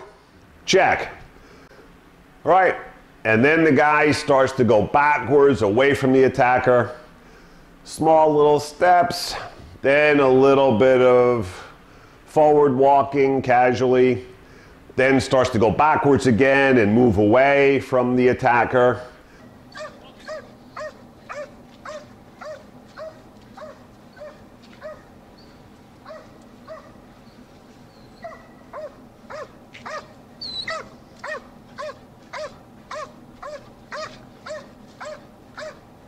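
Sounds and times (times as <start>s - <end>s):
dog barking: 0.0s - 0.2s, 19.7s - 25.1s, 26.0s - 27.0s, 28.2s - 35.8s.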